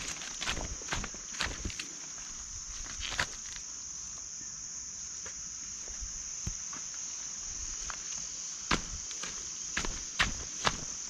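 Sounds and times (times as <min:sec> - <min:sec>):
footsteps on dry leaves: 0:00.0 - 0:03.7, 0:07.6 - 0:11.0
insects chorus: 0:00.0 - 0:11.0.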